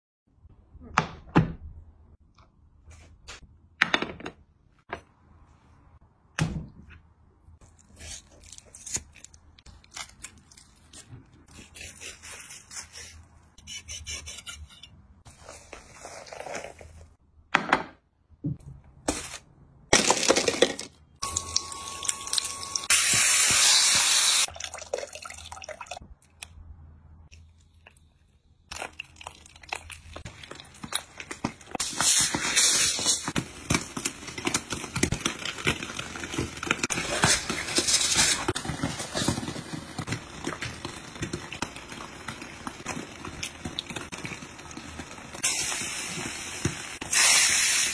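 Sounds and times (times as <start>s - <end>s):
foil crinkling: 30.5s - 46.8s.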